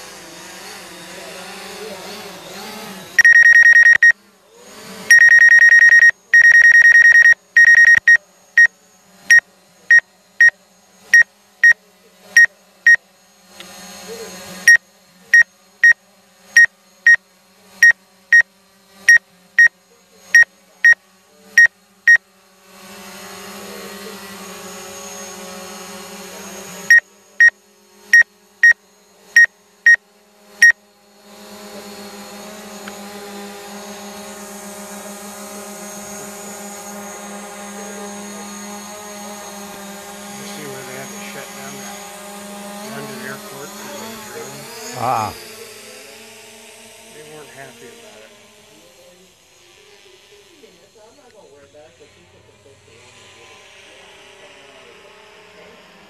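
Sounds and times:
remote controller warning beeps: 3.2 - 4.2, 5.1 - 8.7, 9.3 - 10.6, 11.2 - 11.8, 12.4 - 13.0, 15.4 - 16.0, 20.4 - 21.0, 21.6 - 22.2, 28.2 - 28.8.

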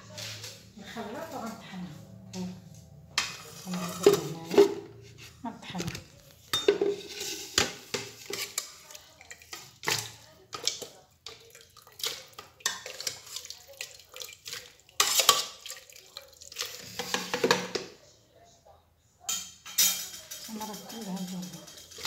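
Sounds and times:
metal spoon scraping a pot: 3.2 - 17.6, 19.7 - 22.0.

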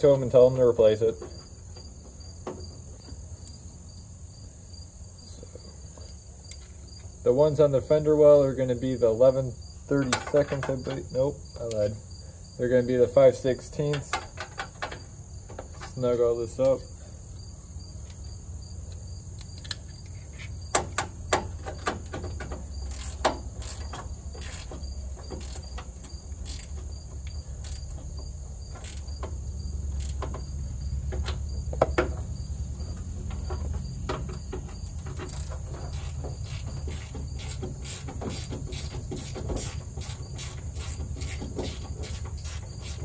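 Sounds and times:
ratchet clicking: 18.9 - 30.5, 34.2 - 43.0.

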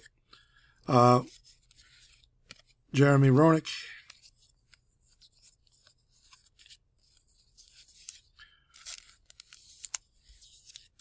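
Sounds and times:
plastic sleeve crinkling: 4.1 - 11.0.

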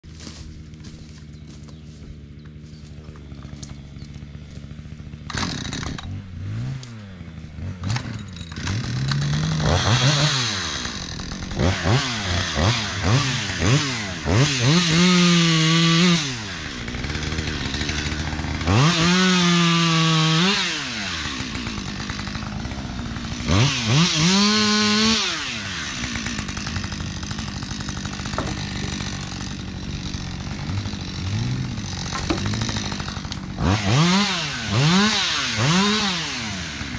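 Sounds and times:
chainsaw idling and revving: 0.0 - 36.9.

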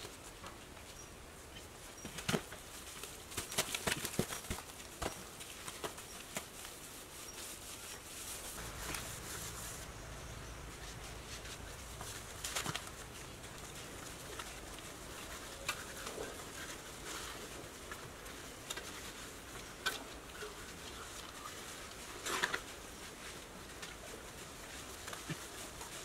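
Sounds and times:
steady low background: 8.6 - 15.5.

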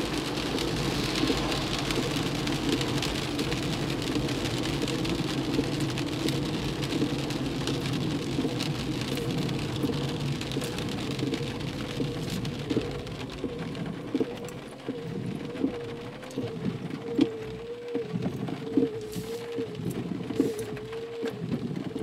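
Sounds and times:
tyres hissing on wet road: 0.0 - 7.8, 20.3 - 20.7
rain on car roof: 0.0 - 22.0.

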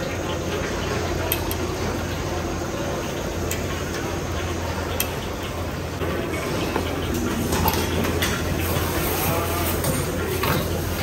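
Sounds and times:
broth simmering: 0.0 - 11.0
gas burner roaring: 0.0 - 11.0.

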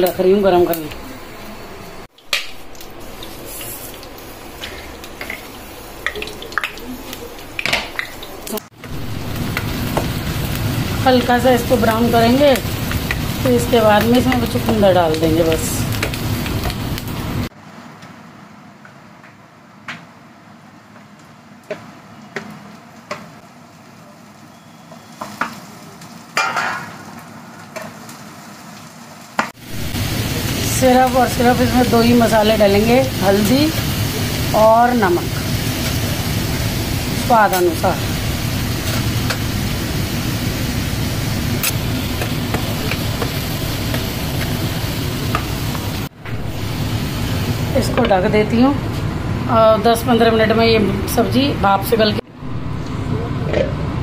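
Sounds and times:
beetroot sizzling in oil: 2.1 - 17.5, 22.9 - 51.2
steady rushing noise: 51.1 - 54.0.

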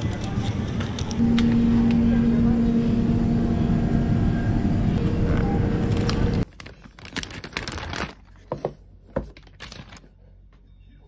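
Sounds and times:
low hum: 0.0 - 6.5
paper bag rustling and crinkling: 5.9 - 10.2.

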